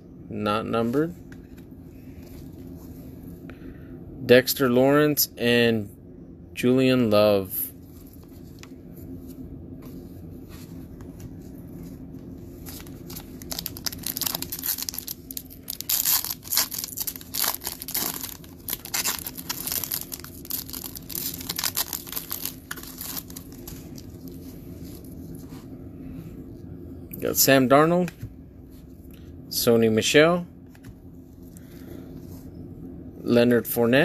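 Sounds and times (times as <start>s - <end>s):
foil wrapper tearing and crinkling: 12.7s - 25.1s.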